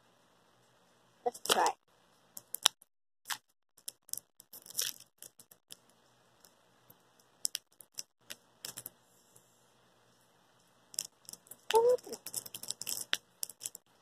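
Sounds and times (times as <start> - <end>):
candy wrapper crinkling and tearing: 2.4 - 5.8, 11.0 - 13.9.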